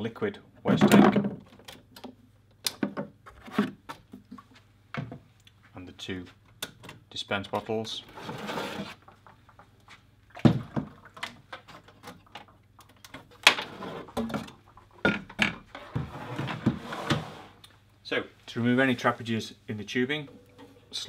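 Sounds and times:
plastic bottles scraping metal: 8.0 - 9.2, 13.4 - 14.4.

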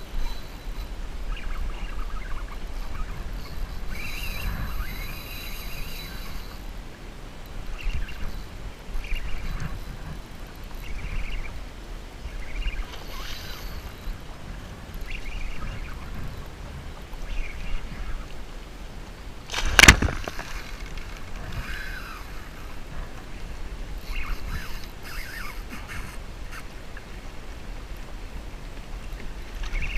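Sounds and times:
waves lapping against kayak hull: 0.0 - 29.9
wind rumble on microphone: 0.0 - 29.9.

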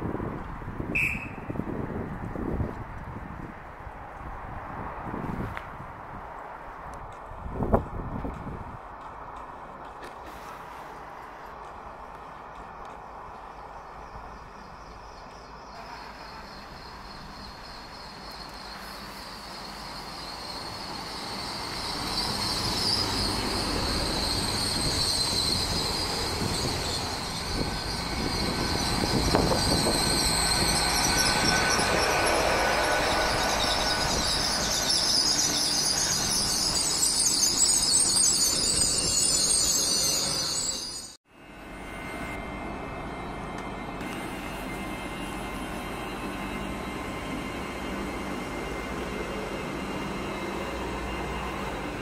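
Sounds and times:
train wheels rumbling on rails: 0.0 - 52.0
brakes squealing: 10.1 - 41.2.

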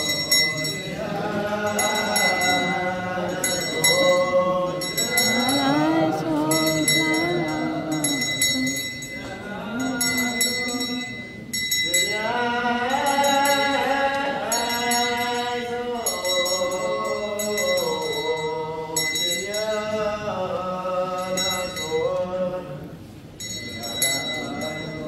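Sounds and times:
small metal bells jingling: 0.0 - 1.0, 1.6 - 12.3, 23.4 - 25.0
clergy singing a funeral chant: 0.0 - 25.0.

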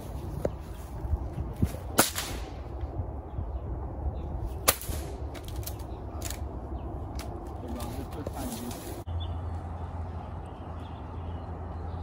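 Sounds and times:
air rifle shots: 2.0 - 2.6.

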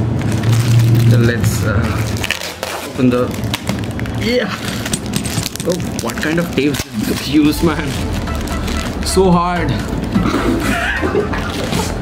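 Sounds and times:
young men laughing: 10.1 - 12.0.

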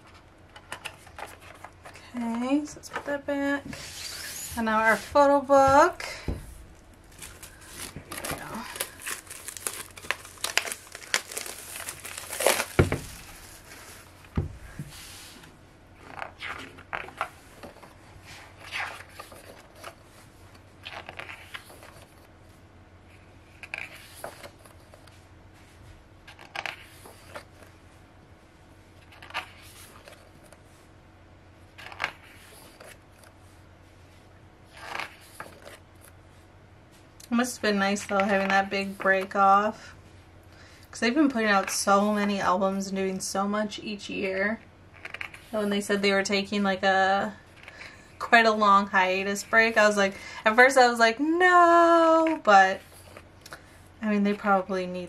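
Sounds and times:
pages turning: 6.6 - 15.2, 26.3 - 27.7, 29.0 - 30.6, 31.8 - 33.4, 34.7 - 36.2
paper handling and crinkling: 6.6 - 15.2.

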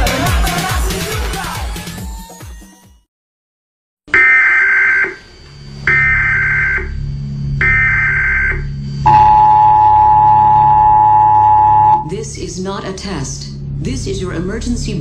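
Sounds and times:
two-tone attention signal: 4.2 - 12.1
low drone: 5.0 - 15.0.

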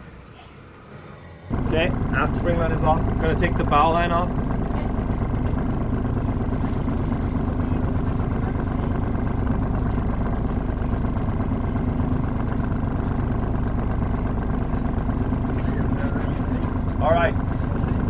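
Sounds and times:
boat engine idling: 0.0 - 18.0.

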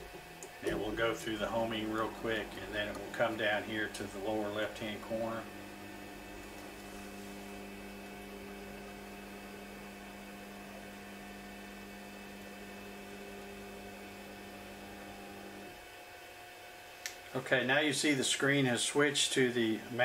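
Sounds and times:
stepper motors humming: 0.0 - 15.8.

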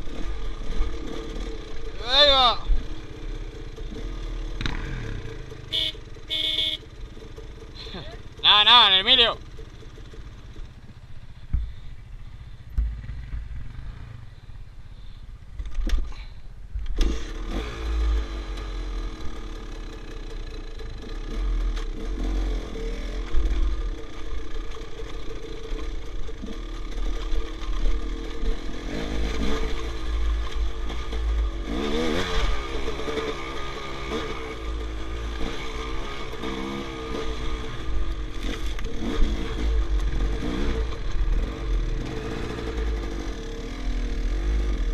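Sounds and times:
motorcycle engine revving: 0.0 - 44.9.

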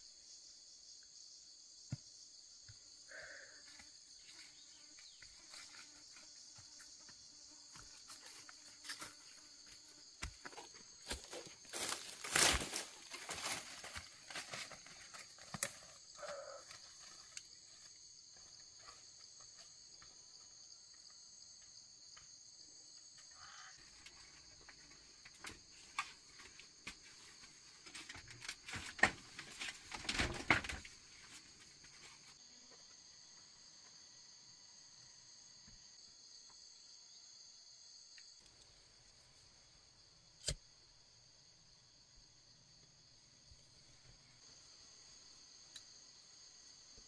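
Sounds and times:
high insect chorus: 0.0 - 47.0
rustling in dry undergrowth: 8.0 - 17.9.

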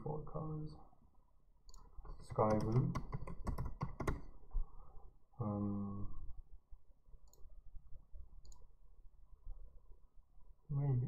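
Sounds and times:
computer mouse clicks: 1.7 - 4.3, 7.2 - 7.5, 8.4 - 8.7.

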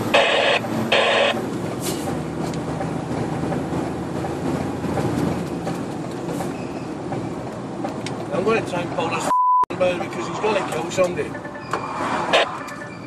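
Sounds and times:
lorry engine droning: 0.0 - 6.2, 10.2 - 13.0
tyre and road noise: 0.0 - 13.0.

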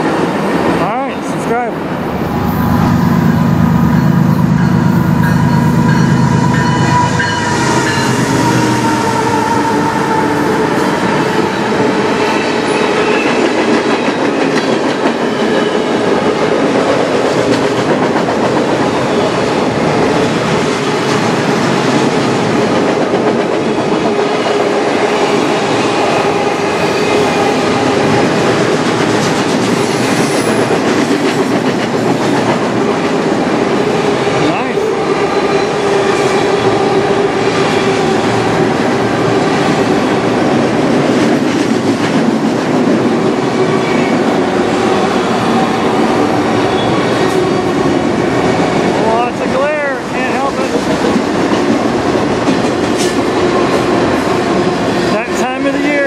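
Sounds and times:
freight train rolling: 0.0 - 56.0
heavy low drone: 1.2 - 8.2
train wheels clattering on rails: 10.1 - 34.6, 35.4 - 49.2, 50.0 - 56.0.

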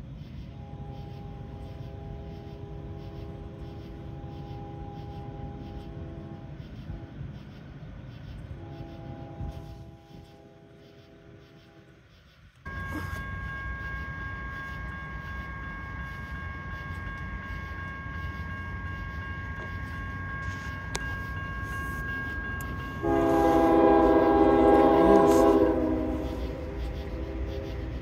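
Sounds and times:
locomotive horn chord: 0.6 - 7.3, 8.5 - 11.5, 12.7 - 28.0
railroad crossing bell ringing: 0.6 - 7.6, 12.6 - 28.0.

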